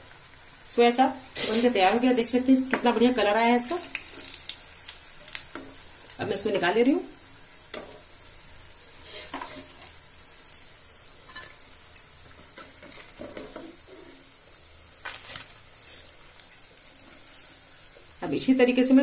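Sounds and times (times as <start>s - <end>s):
hot oil sizzling: 0.0s - 19.0s
metal spoon scraping pan: 1.4s - 2.3s.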